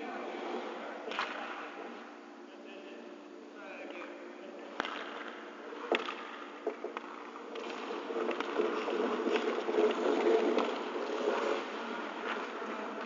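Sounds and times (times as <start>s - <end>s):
sharp clacks on ice: 5.9s - 12.5s
skate blades scraping ice: 7.0s - 13.0s.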